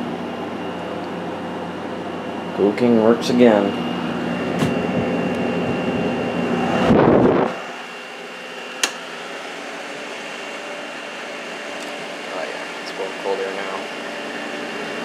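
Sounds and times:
air conditioner fan and compressor hum: 0:00.0 - 0:15.0
single click: 0:08.8 - 0:09.0.

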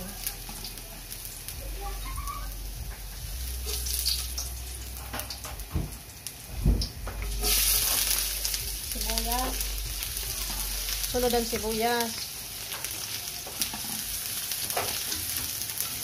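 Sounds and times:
food sizzling in hot oil: 0:00.0 - 0:16.0
spatula scraping a wok: 0:07.2 - 0:08.4.

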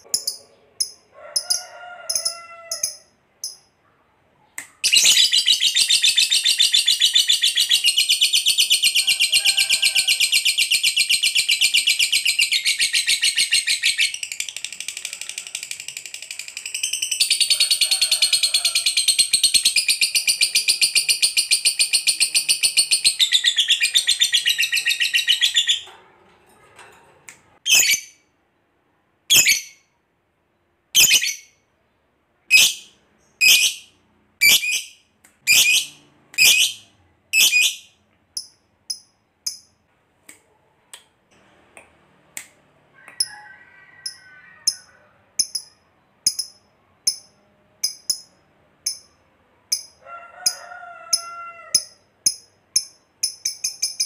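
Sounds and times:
high bird chirps: 0:04.7 - 0:09.2, 0:10.3 - 0:14.6, 0:27.6 - 0:28.2, 0:29.3 - 0:29.8, 0:31.0 - 0:31.6, 0:32.5 - 0:39.7
lovebird chattering trill: 0:32.5 - 0:36.8.

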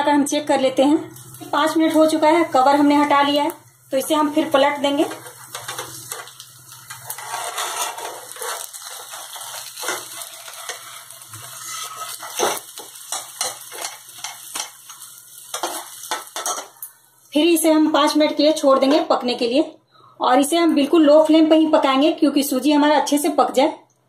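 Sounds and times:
spatula scraping a frying pan: 0:05.0 - 0:16.8.

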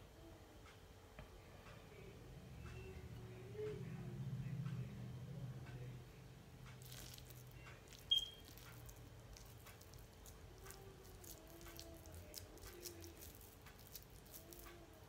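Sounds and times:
hand squishing sticky mixture: 0:06.8 - 0:15.0
sharp high beep: 0:08.1 - 0:08.5.

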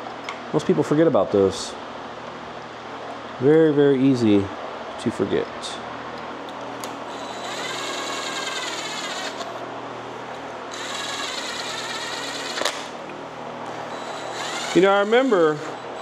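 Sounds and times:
cordless drill driving bolts: 0:07.1 - 0:09.5, 0:10.7 - 0:12.9, 0:13.9 - 0:16.0.

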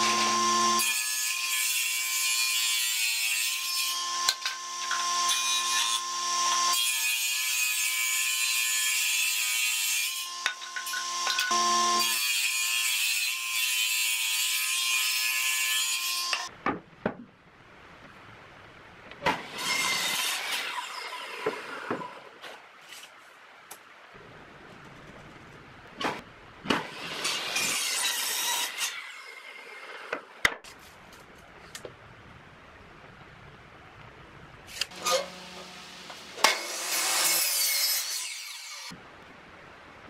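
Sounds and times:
table saw humming: 0:00.0 - 0:00.9, 0:10.8 - 0:12.3, 0:34.7 - 0:38.3
saw blade cutting wood: 0:00.0 - 0:16.5, 0:34.7 - 0:39.0.

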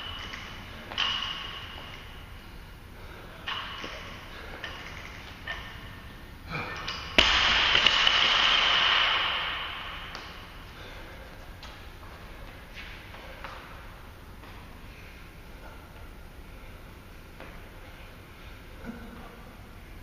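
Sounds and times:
metallic clinks of weight plates: 0:00.0 - 0:02.1, 0:03.4 - 0:06.0
barbell ringing: 0:00.0 - 0:02.3, 0:03.4 - 0:10.6
barbell crashing onto floor: 0:07.1 - 0:10.4.

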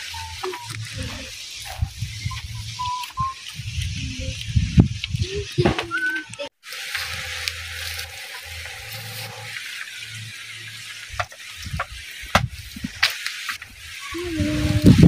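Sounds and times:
held tones: 0:00.0 - 0:04.5
low hum: 0:00.0 - 0:12.9
steady hiss: 0:00.0 - 0:15.0
bamboo poles knocking: 0:11.1 - 0:13.7.

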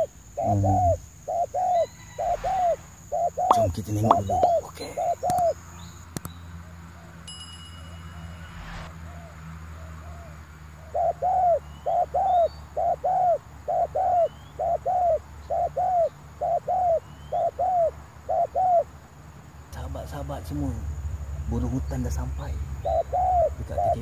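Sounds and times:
dove cooing: 0:00.0 - 0:05.6, 0:10.0 - 0:18.9, 0:22.8 - 0:24.0
small birds chirping: 0:00.0 - 0:07.3, 0:09.0 - 0:24.0.

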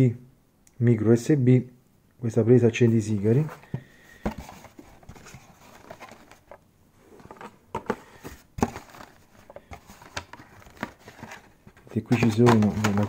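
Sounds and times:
plastic and cardboard being handled: 0:03.0 - 0:13.0.

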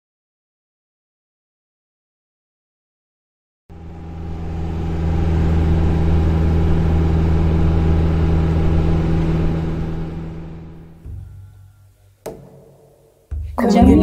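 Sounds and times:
vehicle engine droning: 0:03.7 - 0:11.8.

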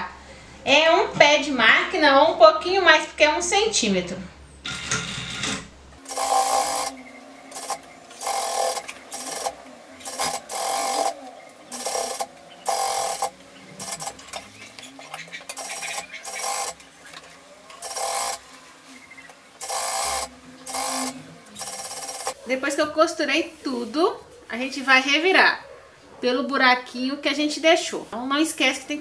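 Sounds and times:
sewing machine stitching: 0:04.7 - 0:22.4.

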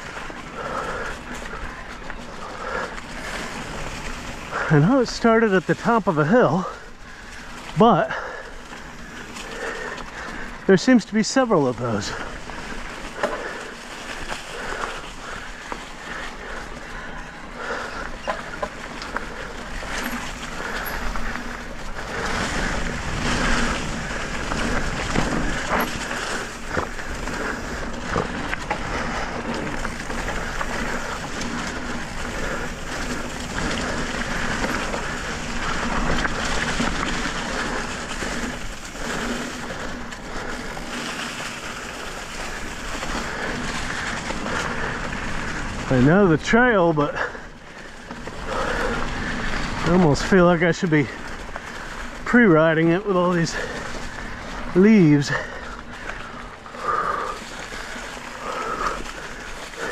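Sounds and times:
tyres on leaves and gravel: 0:00.0 - 0:59.9
bike knocks and rattles: 0:17.7 - 0:41.6.

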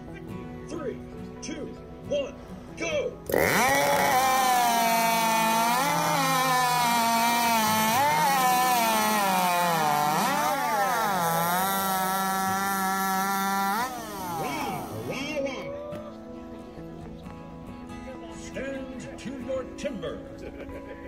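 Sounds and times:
chainsaw cutting log: 0:03.3 - 0:15.3.

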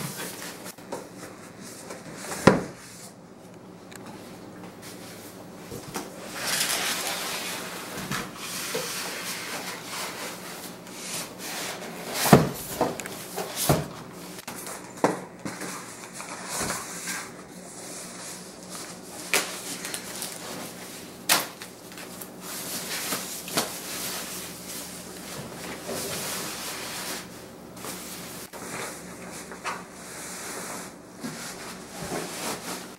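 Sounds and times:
plastic bag rustling: 0:06.2 - 0:10.7.

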